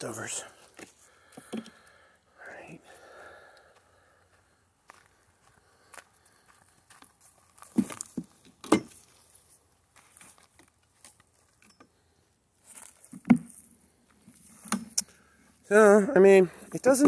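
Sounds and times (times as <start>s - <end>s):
soft scraping and rustling: 12.6s - 14.7s.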